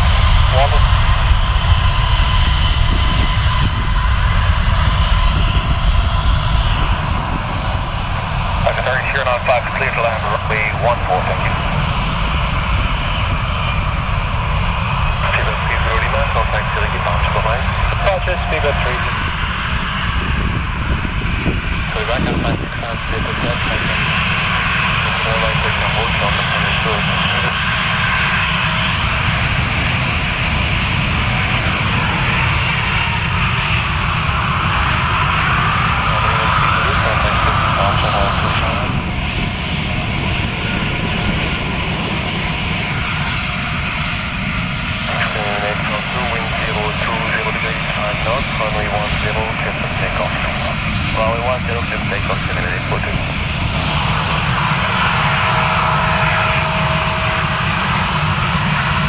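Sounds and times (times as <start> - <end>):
jet engines whining at taxi power: 0.0 - 59.0.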